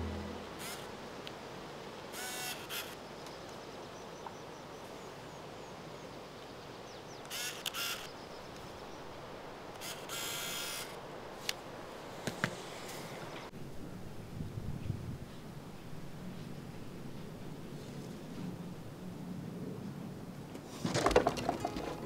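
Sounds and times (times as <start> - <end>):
quiet outdoor ambience: 0.0 - 22.0
camera shutter clicks: 7.3 - 8.0.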